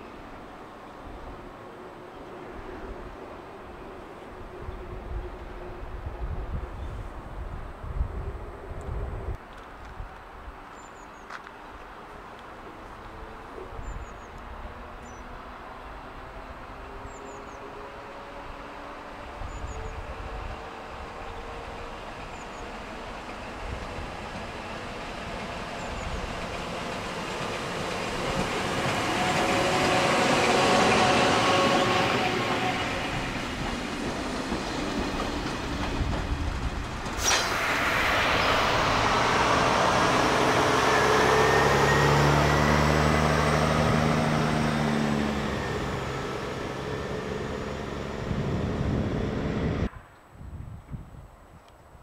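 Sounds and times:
train rolling past: 12.0s - 50.0s
faint rising whine: 37.2s - 42.7s.

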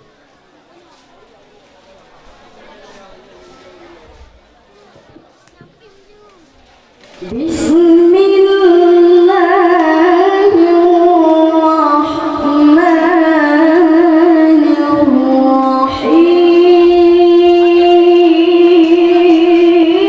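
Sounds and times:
boy reciting melodically into microphone: 5.4s - 20.0s.

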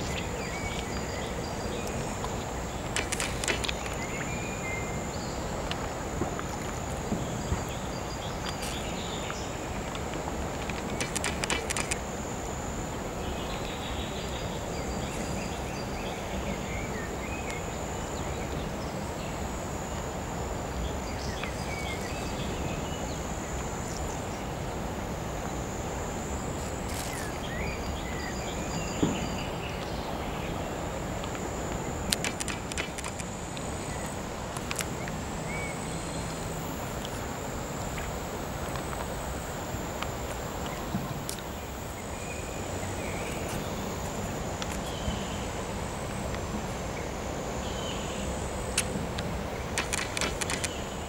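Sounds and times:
background hiss: 0.0s - 51.0s
insect drone: 0.0s - 51.0s.

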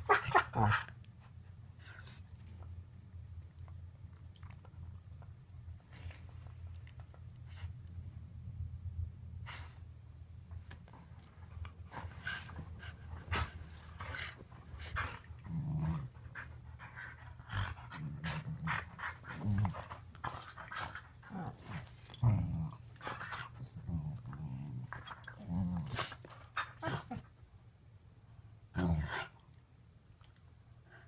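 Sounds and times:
dogs growling: 13.3s - 27.2s.

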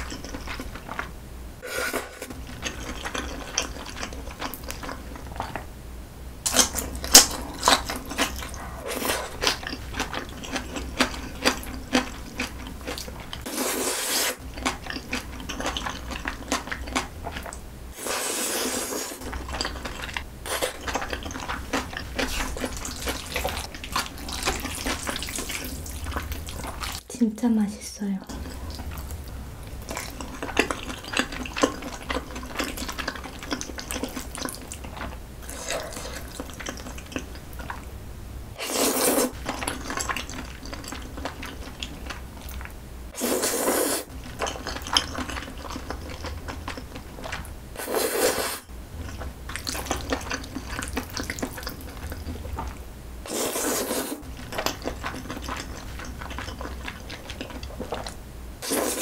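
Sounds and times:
wet chewing and mouth clicks: 0.0s - 1.1s, 2.3s - 5.7s, 6.5s - 13.5s, 14.3s - 17.6s, 19.2s - 27.0s, 28.2s - 37.9s, 38.8s - 42.8s, 44.0s - 47.6s, 48.9s - 59.0s
loud noodle slurps: 13.5s - 14.4s, 18.0s - 19.2s, 38.6s - 39.4s, 43.2s - 44.1s, 47.8s - 48.7s, 53.3s - 54.2s, 58.6s - 59.0s.

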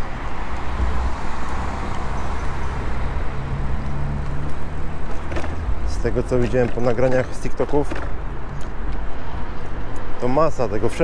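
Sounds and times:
bicycle tyres rumbling on paving: 0.1s - 8.3s.

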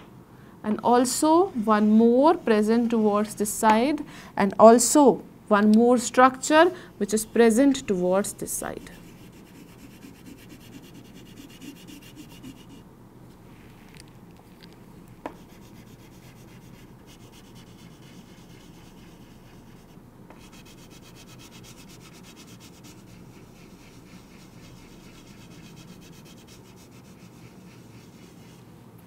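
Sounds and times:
chalk scraping on chalkboard: 8.7s - 12.8s, 15.3s - 28.7s.

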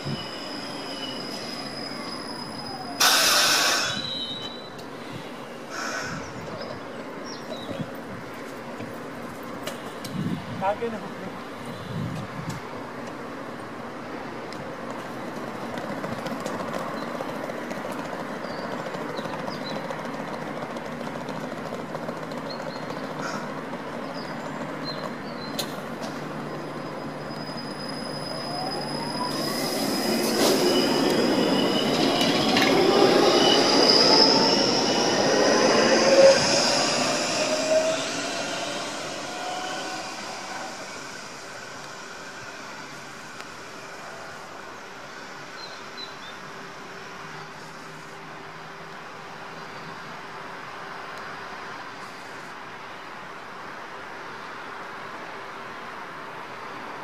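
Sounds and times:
light-rail car equipment running: 0.0s - 57.0s
electric whine with high squealing: 26.5s - 41.6s.

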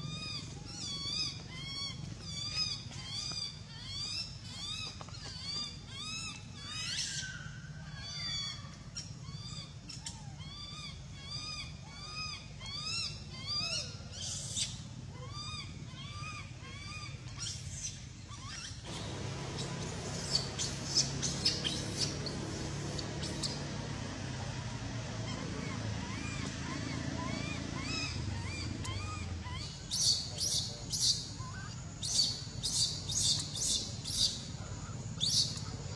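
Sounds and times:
infant monkey squealing cries: 0.0s - 23.7s, 24.5s - 35.8s
low hum: 18.8s - 35.9s.

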